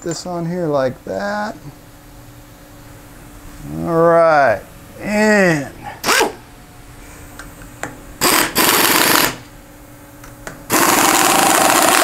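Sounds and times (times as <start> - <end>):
pneumatic driver rattling buzz: 8.2 - 9.5, 10.7 - 12.0.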